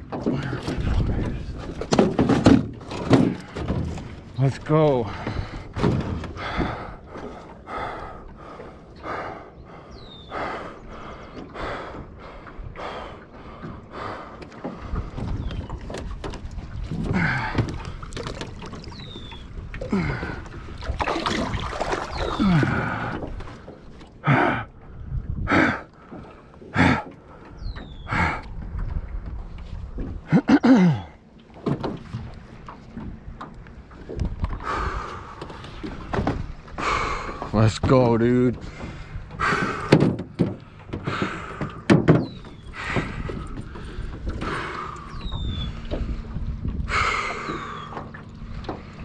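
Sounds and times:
water splashing against boat hull: 0.0 - 9.3, 10.4 - 49.0
knocks in metal boat: 1.7 - 4.1, 39.8 - 42.4.

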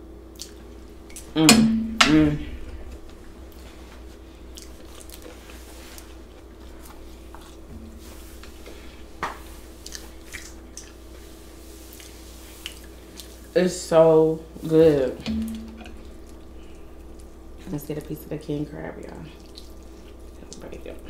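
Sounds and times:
faint steady hum: 0.0 - 21.0
close chewing mouth smacks: 0.3 - 1.3, 4.5 - 7.6, 9.8 - 11.0, 19.1 - 20.7.

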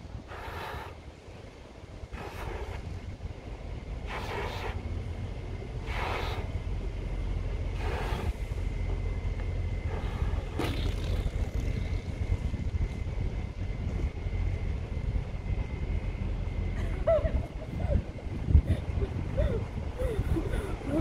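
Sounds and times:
wind rumble on microphone: 0.0 - 21.0
breathy puffs blowing up balloon: 2.1 - 2.8, 4.1 - 4.8, 5.8 - 6.5, 9.9 - 11.8.

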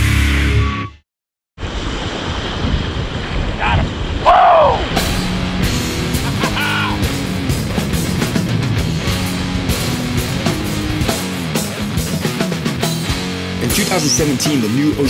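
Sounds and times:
rock music: 0.0 - 1.0, 5.0 - 15.0.

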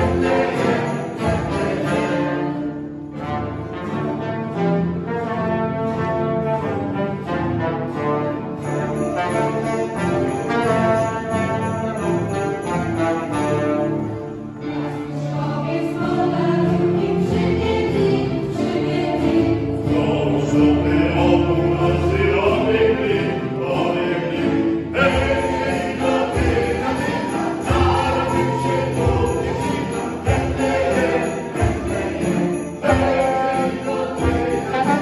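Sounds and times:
jingle bells shaken: 0.0 - 2.6, 8.6 - 14.6, 20.0 - 35.0
keyboard: 0.0 - 5.2, 6.5 - 35.0
trombone: 0.0 - 15.5, 18.7 - 35.0
choir singing a carol: 0.0 - 35.0
violins: 0.0 - 35.0.

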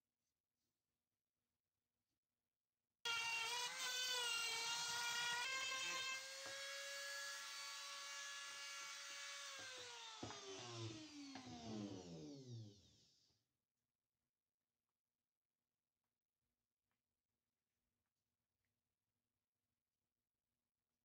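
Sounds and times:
electric rotary tool whining: 3.1 - 13.3.

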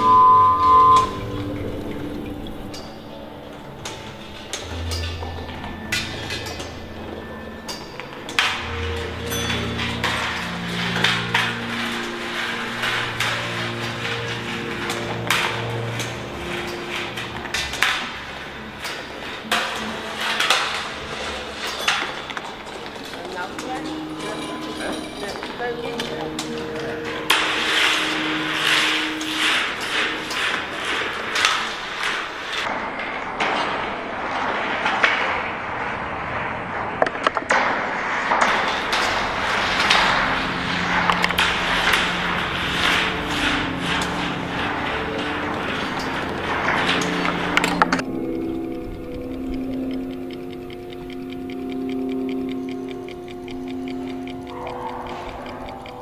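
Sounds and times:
low humming tones: 0.0 - 56.0
sharp clicks: 38.4 - 56.0.

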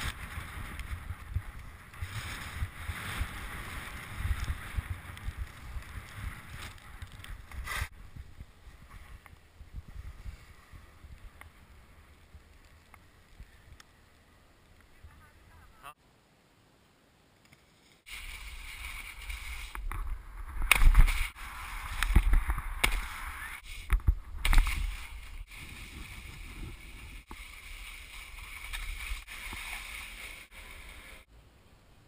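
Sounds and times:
wind rushing over microphone: 0.0 - 12.1, 18.1 - 31.3
wind buffets: 0.0 - 12.4.

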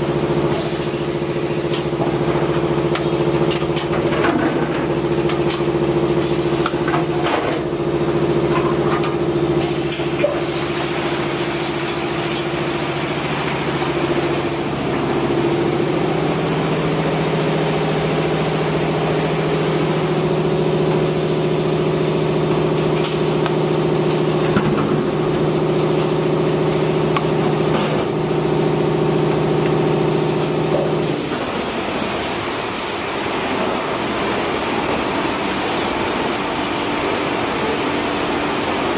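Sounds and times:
machine hum: 0.0 - 38.9
machine hissing: 9.6 - 19.9.

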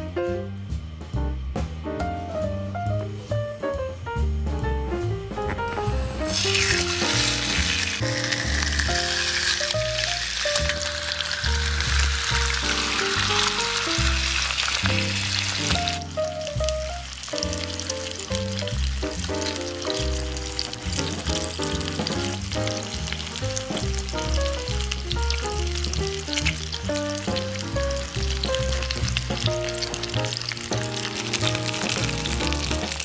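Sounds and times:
chicken frying in oil: 6.2 - 33.0.

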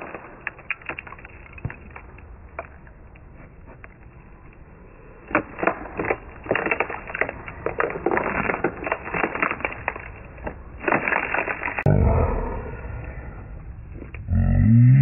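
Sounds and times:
broken skateboard creaking and knocking: 0.0 - 11.9.

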